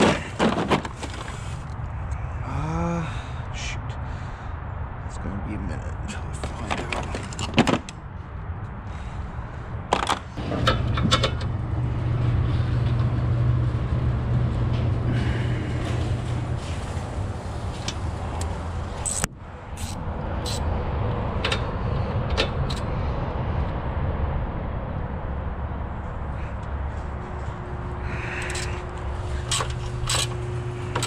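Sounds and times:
steady low rumble: 0.0 - 31.0
hand tools clicking and knocking: 29.4 - 31.0.

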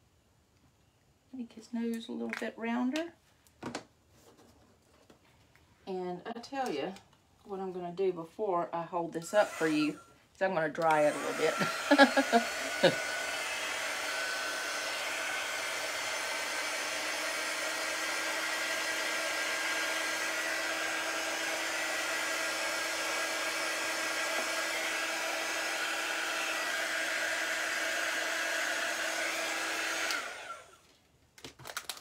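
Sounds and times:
heat tool blowing hot air: 9.3 - 10.0, 10.9 - 30.7.

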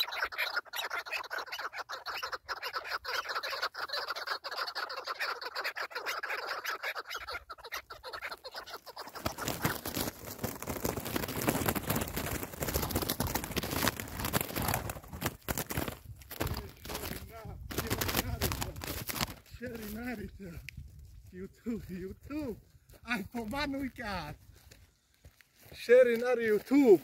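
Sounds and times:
partridges calling: 0.0 - 10.6, 13.7 - 20.6
rough rustling noise: 8.3 - 27.0.

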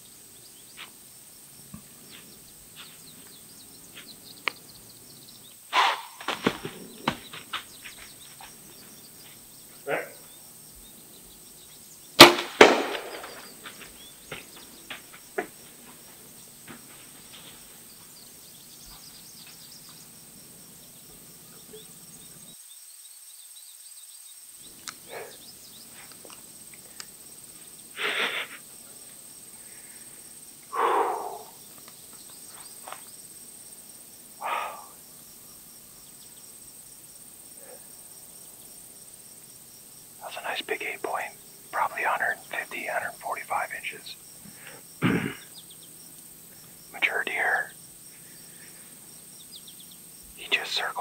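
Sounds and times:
bow string crack: 12.2 - 13.4.

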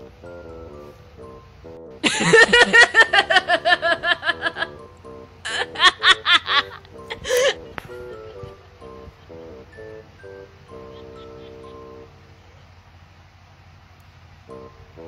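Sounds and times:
light background music: 0.0 - 12.4, 14.4 - 15.0
giggling laughter sound effect: 2.0 - 4.8, 5.4 - 9.4, 10.7 - 12.7.

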